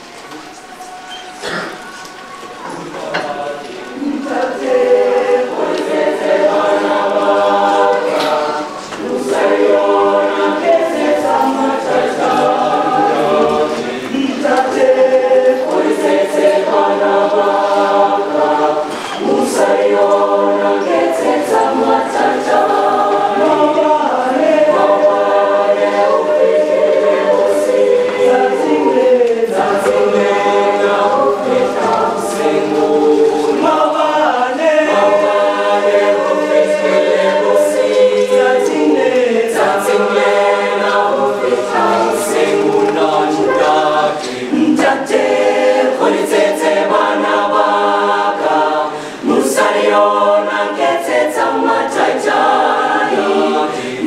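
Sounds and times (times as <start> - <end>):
choir singing unaccompanied: 0.0 - 54.0.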